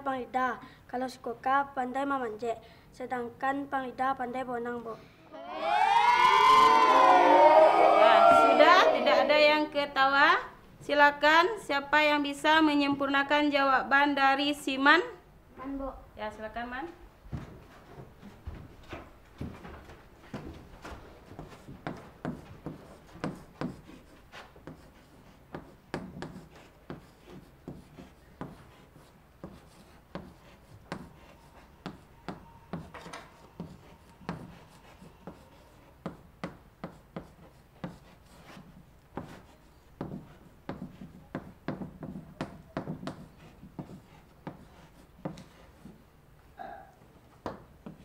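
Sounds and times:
chalk tapping and scraping on blackboard: 0:21.3 - 0:46.1, 0:47.4 - 0:48.0.

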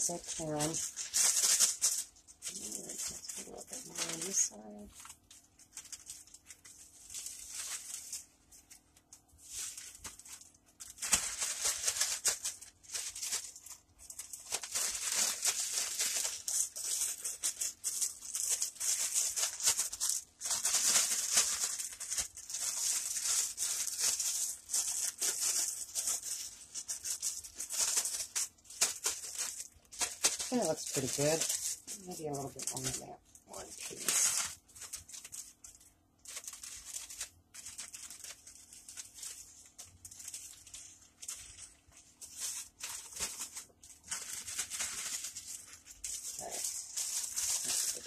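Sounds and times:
food shaken in plastic bag: 0:00.0 - 0:48.0.

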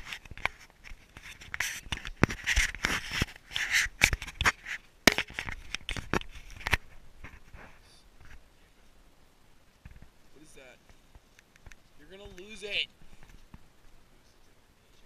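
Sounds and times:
knocks and rustles on camera housing: 0:00.0 - 0:08.4, 0:09.8 - 0:10.2.

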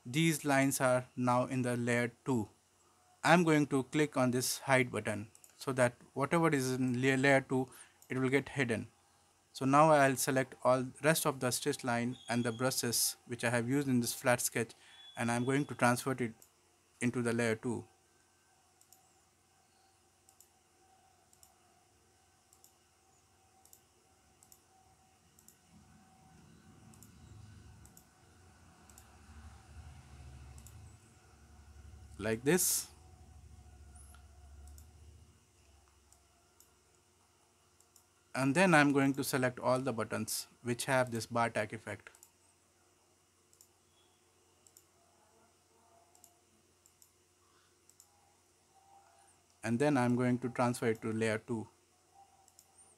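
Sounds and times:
quiet low hum: 0:00.0 - 0:52.9
computer mouse clicks: 0:05.3 - 0:05.6, 0:18.8 - 0:19.2, 0:19.8 - 0:20.6, 0:21.3 - 0:21.6, 0:22.5 - 0:24.7, 0:25.3 - 0:25.8, 0:26.4 - 0:28.1, 0:28.8 - 0:29.2, 0:30.4 - 0:31.0, 0:33.9 - 0:35.1, 0:37.8 - 0:38.1, 0:42.0 - 0:42.4, 0:43.5 - 0:43.8, 0:44.6 - 0:44.9, 0:46.1 - 0:47.2, 0:47.8 - 0:48.2, 0:52.4 - 0:52.9.

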